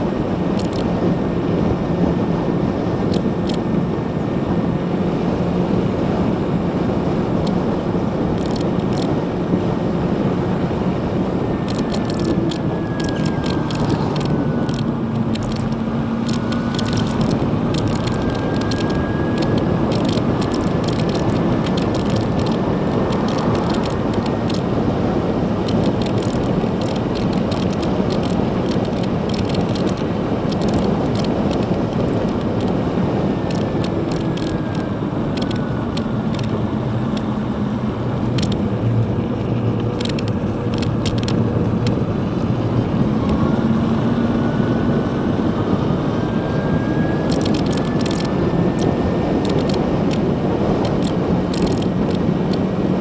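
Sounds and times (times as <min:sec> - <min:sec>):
wind and tyre noise: 0:00.0 - 0:53.0
light ticks and rattles: 0:08.4 - 0:09.1, 0:11.7 - 0:24.7, 0:25.6 - 0:32.8, 0:47.3 - 0:50.2, 0:50.8 - 0:52.6
electric motor whine: 0:08.4 - 0:53.0.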